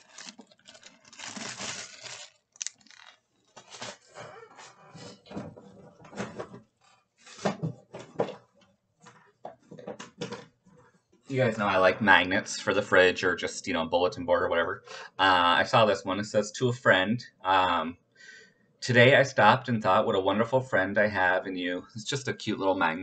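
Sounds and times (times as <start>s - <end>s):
packaging rustling and crinkling: 0.0s - 4.2s.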